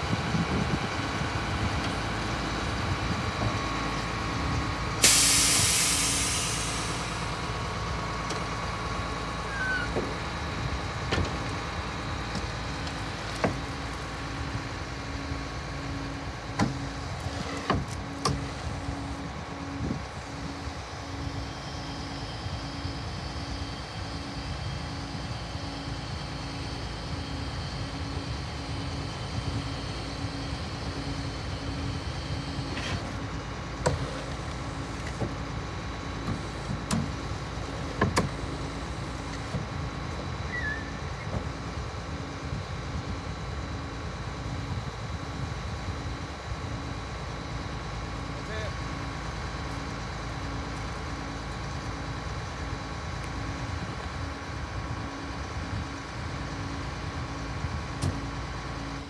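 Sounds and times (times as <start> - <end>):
truck engine humming: 0.0 - 59.0
loud air hiss: 5.0 - 7.5.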